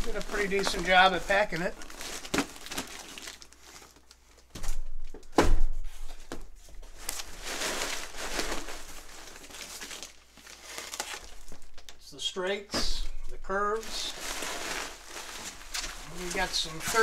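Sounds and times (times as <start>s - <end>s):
plastic packing crinkling: 0.0s - 4.5s, 6.7s - 12.0s, 13.6s - 17.0s.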